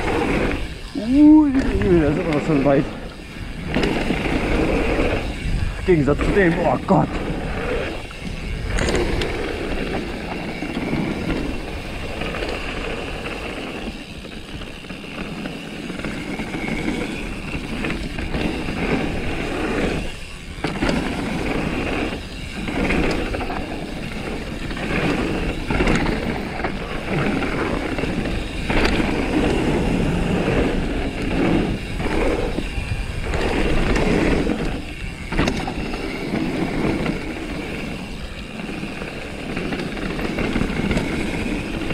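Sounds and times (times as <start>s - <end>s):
bike tyre and wind noise: 0.0s - 41.9s.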